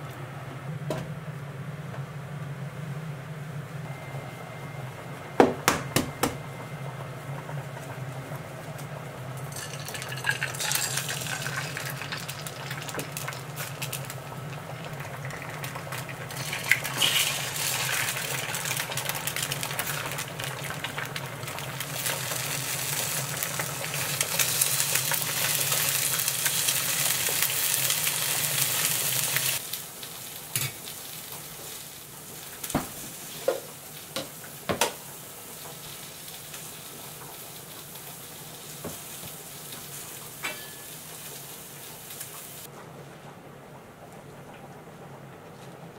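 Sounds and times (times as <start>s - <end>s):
eggs sizzling in frying pan: 9.2s - 42.7s.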